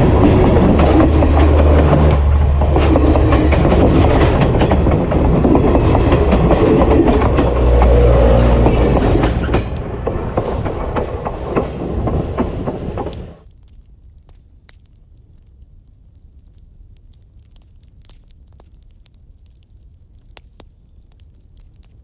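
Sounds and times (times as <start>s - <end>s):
rapid clicking and clatter: 0.0s - 8.0s, 8.6s - 13.4s
train wheels rumbling on rails: 0.0s - 13.4s.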